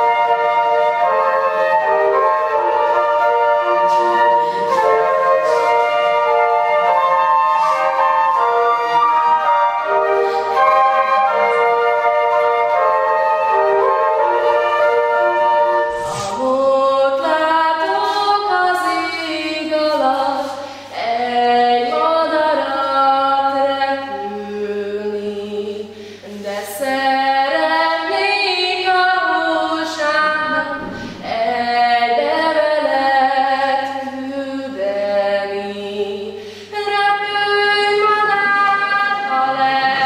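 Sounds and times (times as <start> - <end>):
woman singing unaccompanied: 0.0 - 9.5, 16.2 - 40.0
flutes playing slow melody: 0.0 - 16.6.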